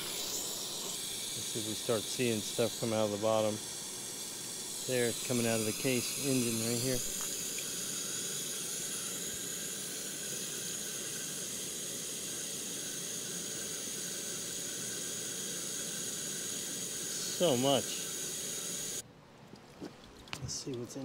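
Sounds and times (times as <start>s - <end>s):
garden hose spraying water: 0.0s - 19.0s.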